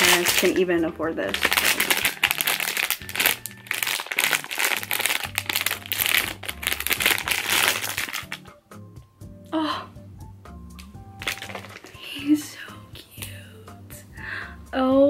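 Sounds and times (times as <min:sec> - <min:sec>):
plastic pouch crinkling and tearing: 0:00.0 - 0:00.6, 0:01.3 - 0:08.6, 0:11.2 - 0:12.3
soft background music: 0:00.0 - 0:15.0.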